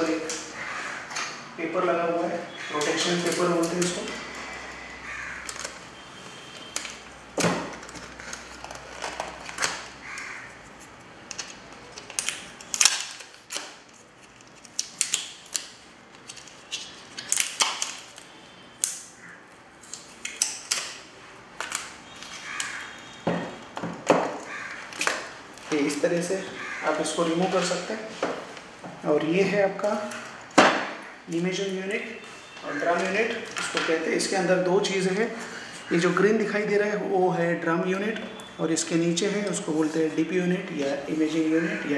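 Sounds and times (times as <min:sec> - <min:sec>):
tape and paper peeling: 0:05.3 - 0:19.1, 0:19.8 - 0:23.0.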